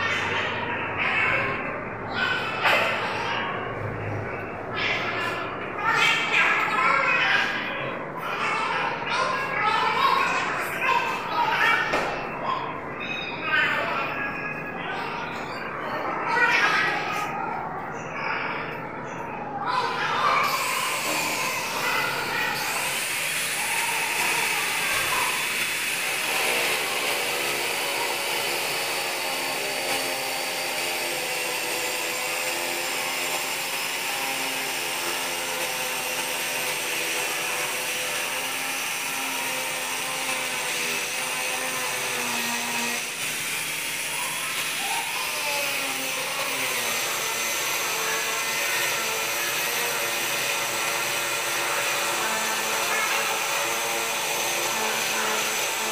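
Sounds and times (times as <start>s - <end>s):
power tool motor hum: 20.4s - 55.9s.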